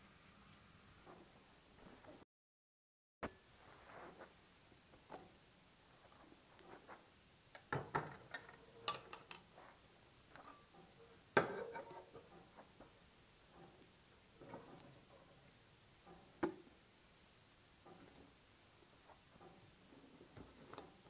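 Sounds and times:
metal cookware clattering: 7.6 - 9.5, 10.3 - 12.6.

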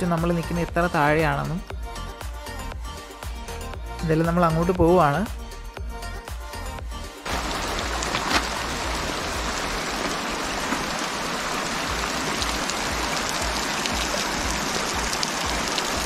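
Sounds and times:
stream flowing over stones: 7.3 - 16.0.

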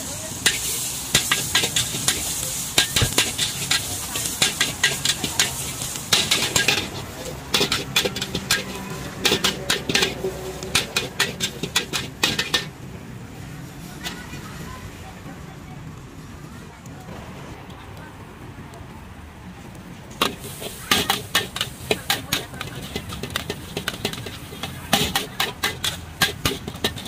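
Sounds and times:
food sizzling in hot oil: 0.0 - 12.8, 20.2 - 27.0
metal spatula scraping a wok: 0.3 - 12.8, 20.2 - 27.0.

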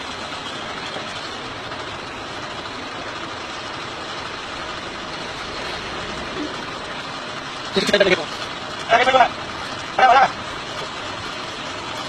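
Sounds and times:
vehicle engine from inside cab: 0.0 - 12.0.

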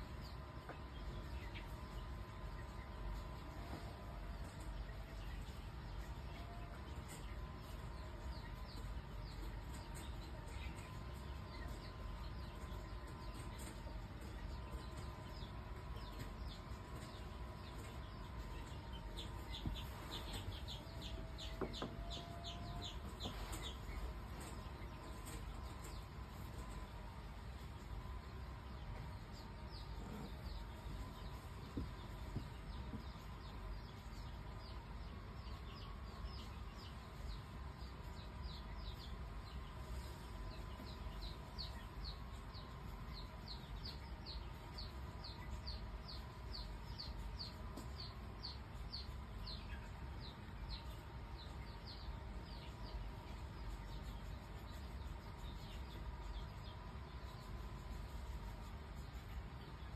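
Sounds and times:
faint steady hum: 0.0 - 59.9
small animal peeping: 0.0 - 59.9.

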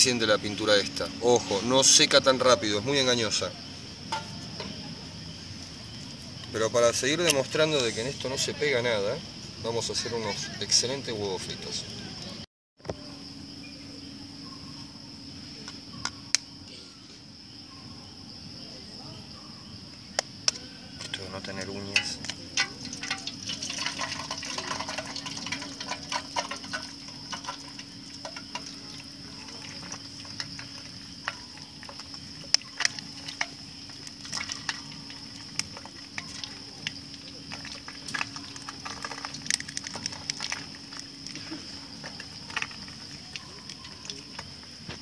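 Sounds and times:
insect chirring: 0.0 - 45.0
eggs sizzling in a pan: 20.4 - 45.0
egg cracking tap: 22.0 - 36.9.

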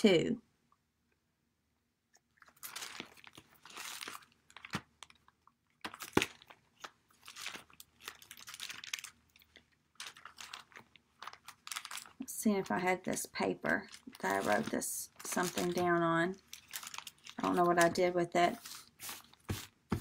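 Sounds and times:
paper rustling and crinkling: 2.4 - 5.2, 5.8 - 12.2, 13.7 - 20.0.

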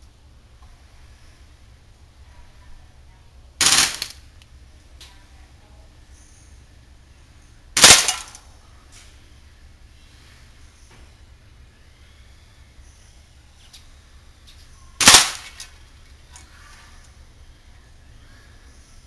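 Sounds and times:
airsoft gun full-auto bursts: 3.6 - 4.2, 7.8 - 8.4, 15.0 - 15.6.

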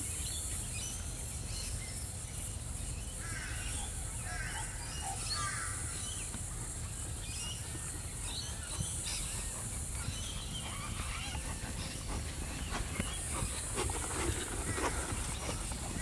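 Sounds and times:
birds calling: 0.7 - 16.0
horse hooves thudding on sand: 5.4 - 16.0.

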